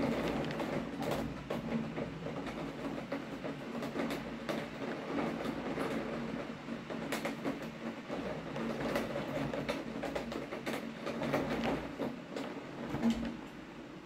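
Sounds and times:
heavy rain pouring: 0:00.0 - 0:13.5.

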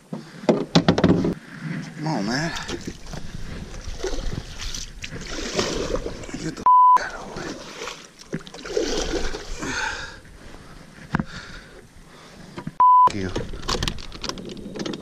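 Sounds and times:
censor bleep tone: 0:06.7 - 0:07.1, 0:12.8 - 0:13.2.

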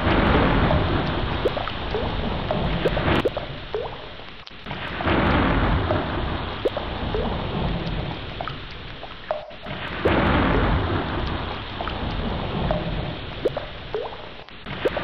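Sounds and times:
rolling thunder: 0:00.0 - 0:03.7, 0:04.7 - 0:08.5, 0:09.6 - 0:13.9
heavy rain: 0:00.0 - 0:15.0
short high plinks: 0:09.3 - 0:09.8.

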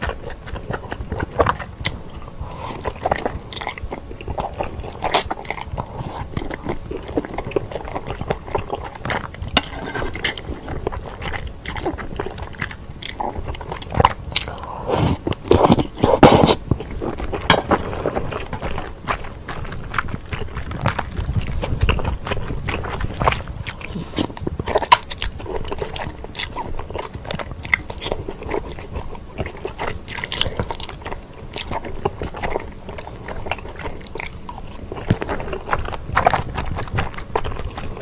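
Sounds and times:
chewing: 0:00.0 - 0:38.0
slurping noodles: 0:14.4 - 0:16.6.

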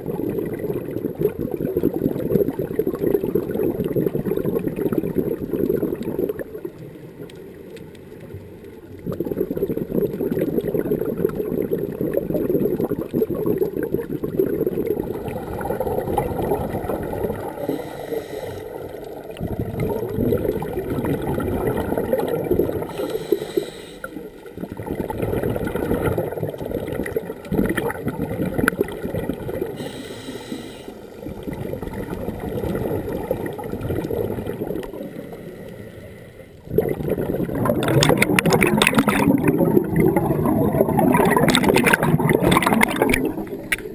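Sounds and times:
underwater bubbles gurgling: 0:00.0 - 0:43.9
regulator inhalation hiss: 0:17.6 - 0:18.8, 0:22.9 - 0:24.2, 0:29.8 - 0:31.2.

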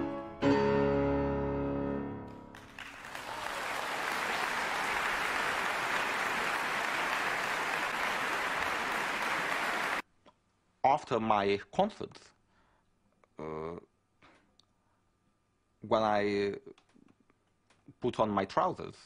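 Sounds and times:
piano chord ringing: 0:00.0 - 0:02.5
audience applause: 0:02.5 - 0:10.0.

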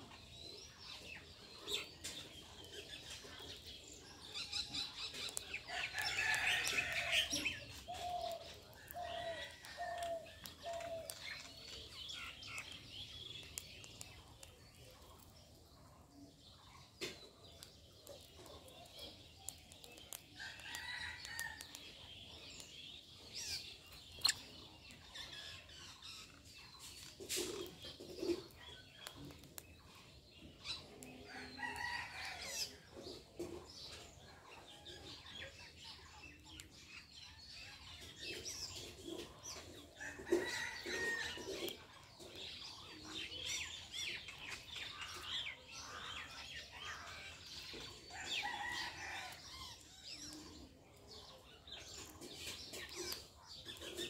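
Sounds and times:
birds chirping: 0:00.0 - 0:35.6.

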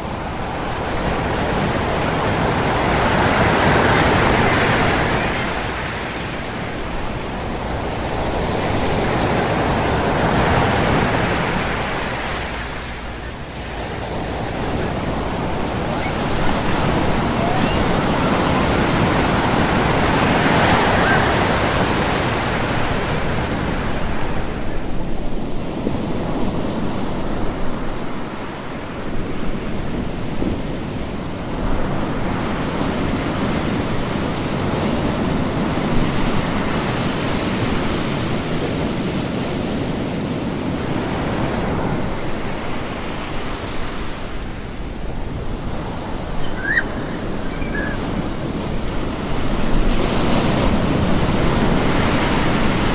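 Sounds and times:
ocean waves rushing: 0:00.0 - 0:52.9.

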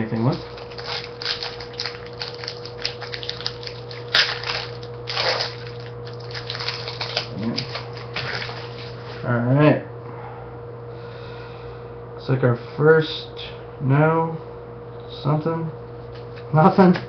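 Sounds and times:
steady low hum: 0:00.0 - 0:17.0
cards clicking and slapping: 0:00.2 - 0:08.7.

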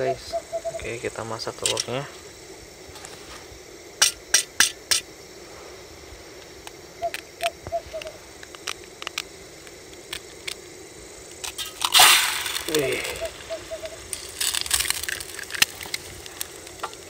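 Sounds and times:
steady low hum: 0:00.0 - 0:17.0
cooking gear clicks and knocks: 0:01.6 - 0:01.9.

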